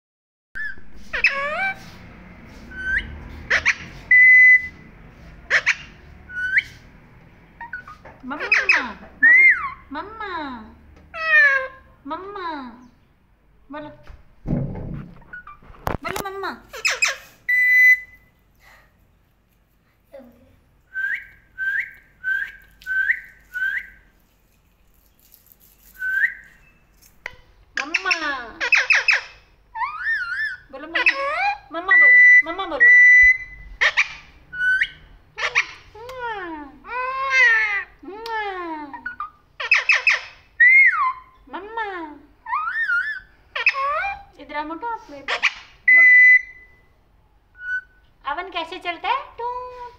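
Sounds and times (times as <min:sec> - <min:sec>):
parakeet whistled calls and squawks: 0:00.6 - 0:02.0, 0:02.7 - 0:04.9, 0:05.5 - 0:06.8, 0:07.6 - 0:09.9, 0:15.2 - 0:15.6, 0:16.7 - 0:18.3, 0:20.9 - 0:24.0, 0:25.8 - 0:26.9, 0:27.8 - 0:35.8, 0:39.0 - 0:41.4, 0:42.4 - 0:44.2, 0:45.3 - 0:46.9, 0:47.6 - 0:48.0
parakeet held whistle: 0:02.7 - 0:04.8, 0:16.8 - 0:18.3, 0:20.9 - 0:24.0, 0:26.0 - 0:26.8, 0:31.9 - 0:35.6, 0:45.9 - 0:46.8.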